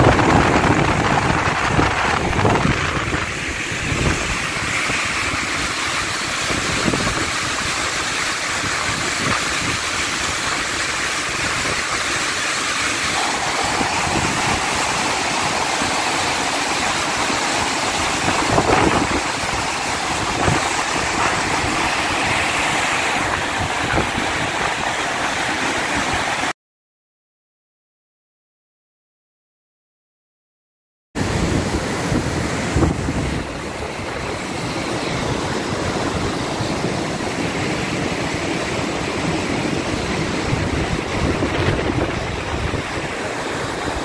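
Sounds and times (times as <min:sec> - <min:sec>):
river in flood roaring: 0:00.0 - 0:26.6, 0:31.2 - 0:44.0.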